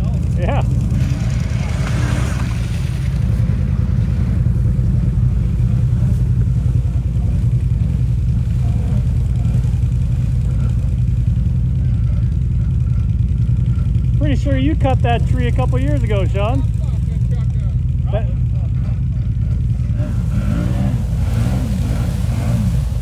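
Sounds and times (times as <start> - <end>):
water splashing: 0.0 - 14.1, 19.2 - 23.0
quad bike engine running: 0.0 - 23.0.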